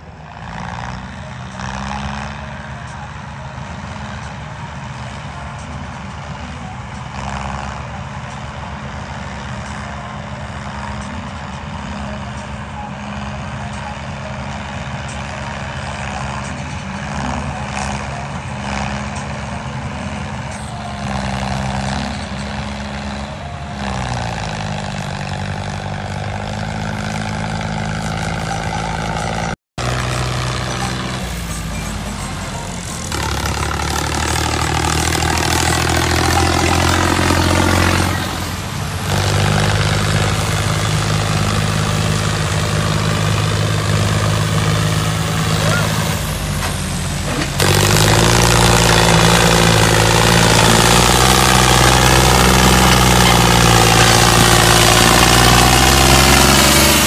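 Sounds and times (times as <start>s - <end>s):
toy tractor motor running: 32.0s - 45.8s.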